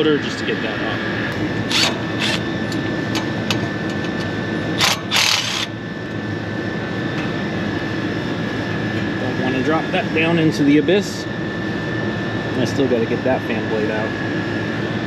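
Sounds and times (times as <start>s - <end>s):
air conditioning equipment drone: 0.0s - 15.0s
cordless driver bursts: 1.7s - 2.4s, 4.8s - 5.7s.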